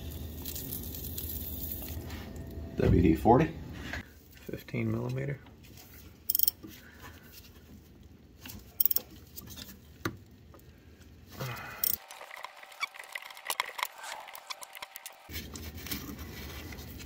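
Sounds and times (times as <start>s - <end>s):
wrench clicking: 6.3s - 6.6s, 8.8s - 9.0s, 11.8s - 12.0s.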